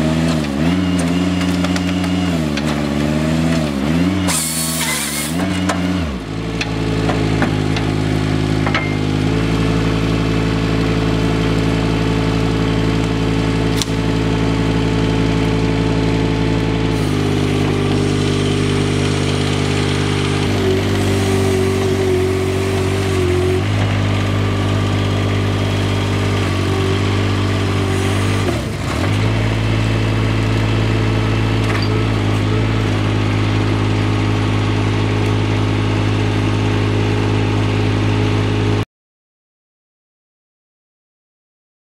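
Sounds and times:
saw cutting log: 0:00.0 - 0:06.2, 0:16.7 - 0:24.4, 0:26.1 - 0:29.7
small engine running: 0:00.0 - 0:38.8
hydraulic whine: 0:00.1 - 0:36.3.

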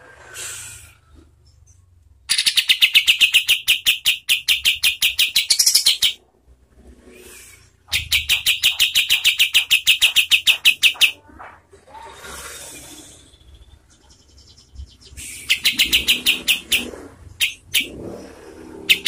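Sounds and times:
bird song of rapid sharp notes: 0:01.5 - 0:06.2, 0:07.8 - 0:11.2, 0:12.9 - 0:18.1, 0:18.8 - 0:19.0.

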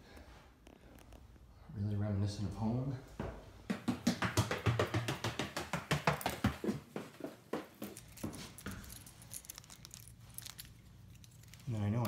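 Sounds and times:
footsteps on wooden stairs: 0:03.2 - 0:09.0.

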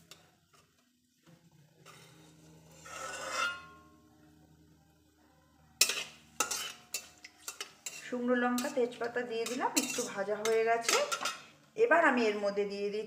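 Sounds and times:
faint low hum: 0:00.1 - 0:06.4
metal spatula scraping metal pan: 0:01.8 - 0:04.0, 0:05.8 - 0:11.6.

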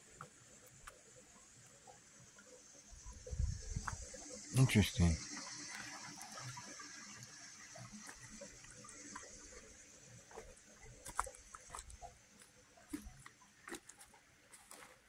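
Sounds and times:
footsteps on rocks and leaves: 0:10.3 - 0:12.0, 0:12.9 - 0:15.0.

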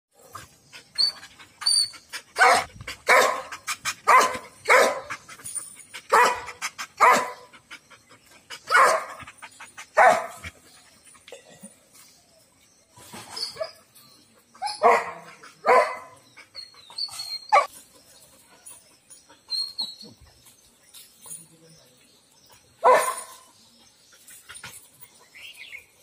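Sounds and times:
dog barking: 0:02.4 - 0:03.5, 0:04.1 - 0:05.1, 0:06.1 - 0:07.4, 0:08.7 - 0:09.2, 0:10.0 - 0:10.4, 0:14.8 - 0:16.2, 0:22.8 - 0:23.3.

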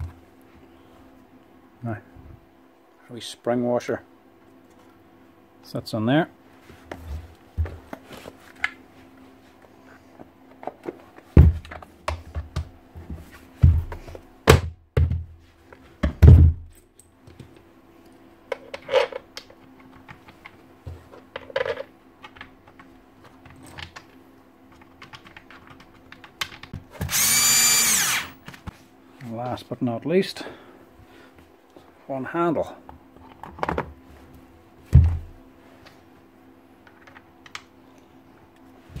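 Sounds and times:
plastic cover knocks and thuds: 0:11.3 - 0:12.7, 0:13.6 - 0:15.4, 0:16.0 - 0:16.7, 0:34.9 - 0:35.3
cordless screwdriver whirring: 0:27.1 - 0:28.4.

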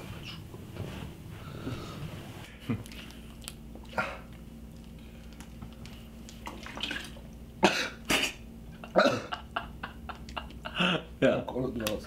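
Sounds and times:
low room hum: 0:00.0 - 0:12.0
person coughing: 0:07.6 - 0:09.4.

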